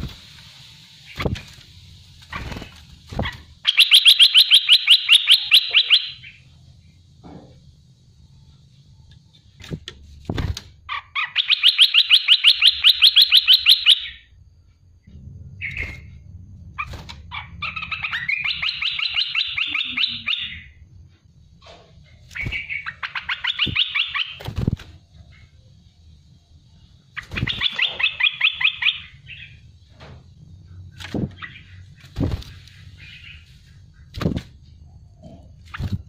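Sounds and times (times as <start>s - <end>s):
bird singing fast trills: 3.6s - 6.5s, 10.9s - 14.3s, 16.8s - 20.8s, 22.3s - 24.5s, 26.7s - 29.7s.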